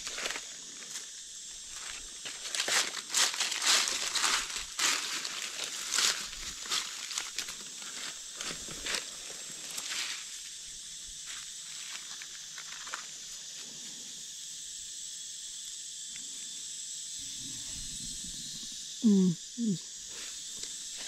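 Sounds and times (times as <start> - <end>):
high-pitched insect drone: 0.0 - 21.0
footsteps on dry leaves: 1.7 - 10.4.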